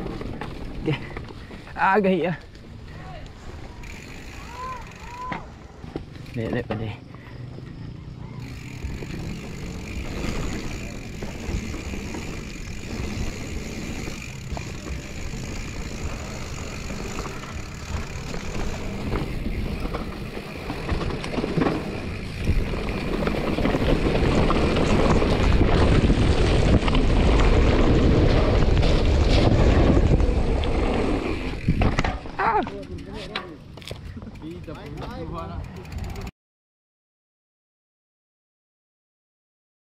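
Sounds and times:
tyres rolling on dirt trail: 0.0s - 36.3s
bike clicks and knocks: 2.4s - 7.8s, 8.4s - 36.3s
wind over microphone: 17.3s - 32.6s.

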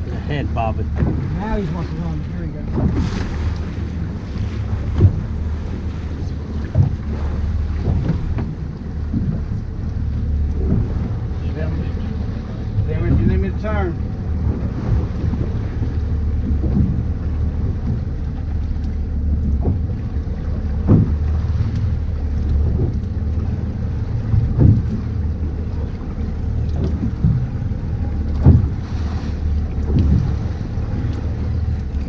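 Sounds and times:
boat engine and water rumble: 0.0s - 32.0s
boat thumps: 0.0s - 32.0s.

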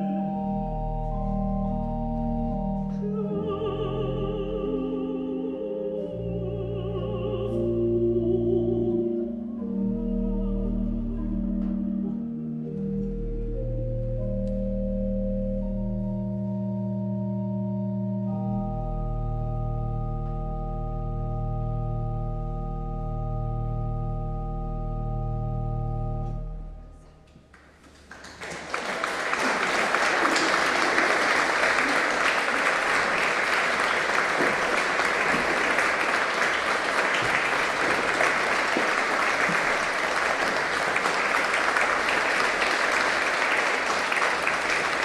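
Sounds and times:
pipe organ chord: 0.0s - 27.2s
audience applause: 27.5s - 45.0s.

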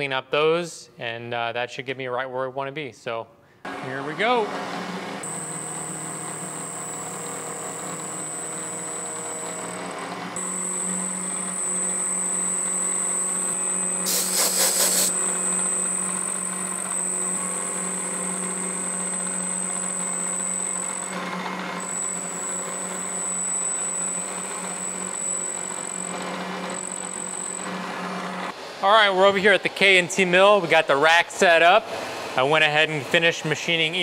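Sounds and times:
milling machine spindle whine: 3.7s - 28.6s
end mill cutting steel: 3.7s - 28.8s.

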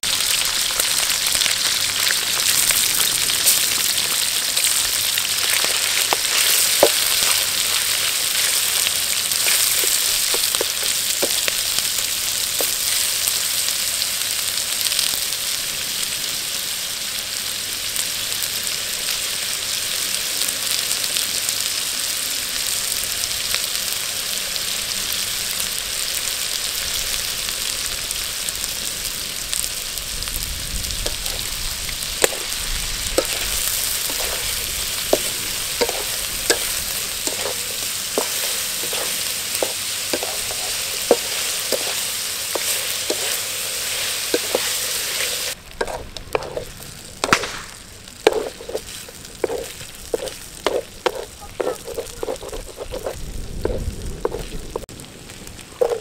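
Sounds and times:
meat sizzling in hot oil: 0.0s - 56.0s
spatula scraping a wok: 3.4s - 13.5s, 32.2s - 47.4s, 48.2s - 54.9s, 55.8s - 56.0s.

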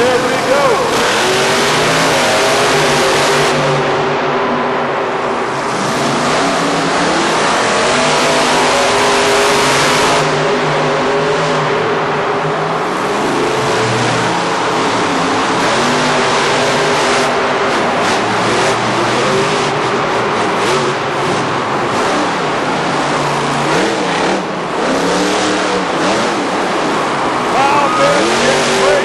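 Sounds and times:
monster truck engines revving: 0.0s - 29.0s
steady wash of noise: 27.2s - 29.0s.

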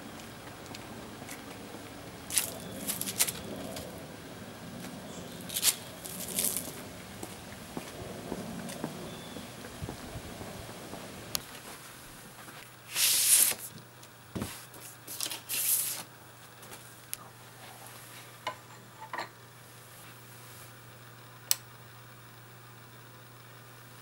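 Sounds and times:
vinyl record rustling and sliding: 2.3s - 4.0s, 7.8s - 18.4s.

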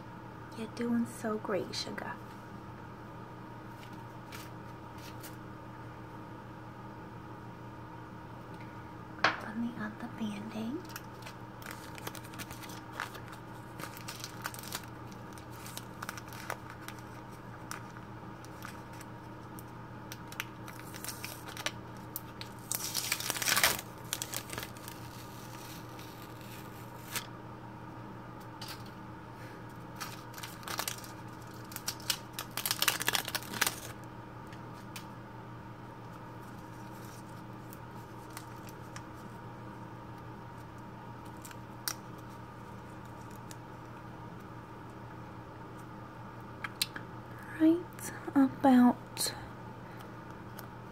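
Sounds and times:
paper wrapper crinkling: 3.7s - 5.4s, 10.8s - 27.3s, 30.0s - 34.1s, 36.2s - 39.4s, 40.6s - 43.9s
paper wrapper tearing: 10.8s - 19.1s, 20.1s - 27.3s, 30.0s - 34.0s, 36.4s - 39.3s, 41.2s - 43.6s.

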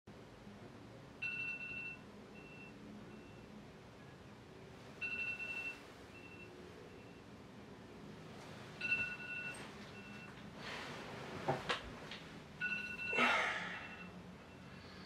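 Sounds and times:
electronic alarm beeping: 1.2s - 3.5s, 5.0s - 7.3s, 8.8s - 10.4s, 12.6s - 14.7s.

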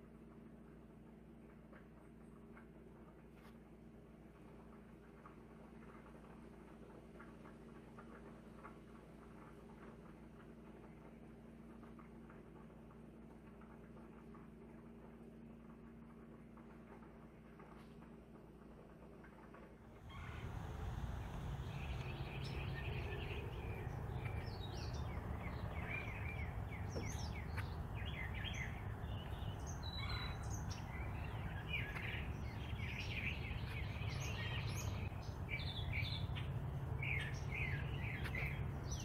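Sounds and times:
steady low rumble: 19.8s - 39.0s
songbirds chirping: 20.0s - 39.0s.

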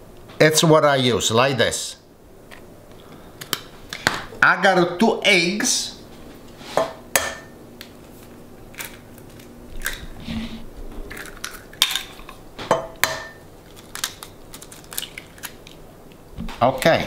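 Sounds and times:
eggshells cracking: 8.6s - 10.2s, 11.1s - 12.4s, 13.6s - 15.9s.

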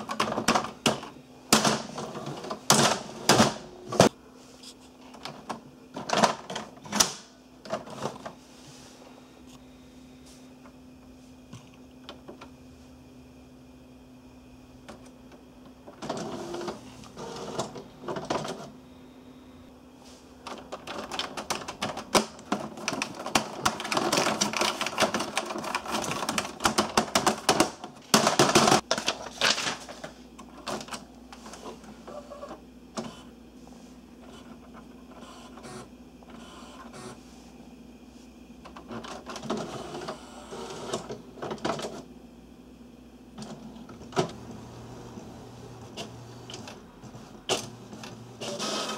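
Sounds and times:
printer carriage whirring and clattering: 0.0s - 4.2s, 5.0s - 8.5s, 10.6s - 12.6s, 14.7s - 18.9s, 20.1s - 37.8s, 38.4s - 42.2s, 43.3s - 48.9s.

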